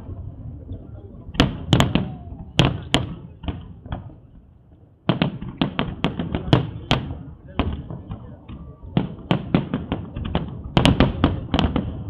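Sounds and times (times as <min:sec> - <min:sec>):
fireworks bursting: 0:00.7 - 0:12.0.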